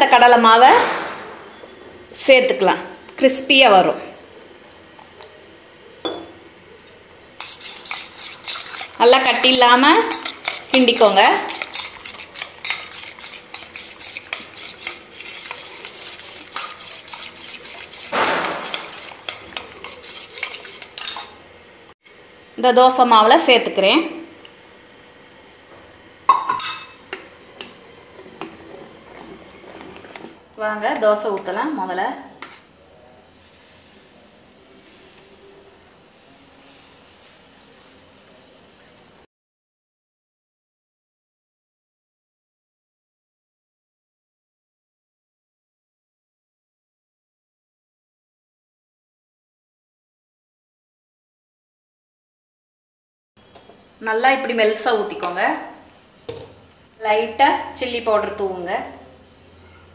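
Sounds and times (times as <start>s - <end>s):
batter sizzling on hot pan: 4.1s - 22.2s, 24.4s - 39.3s
spoon clinking against steel vessel: 6.1s - 6.4s, 26.3s - 27.3s
spoon scraping vessel: 7.4s - 21.4s.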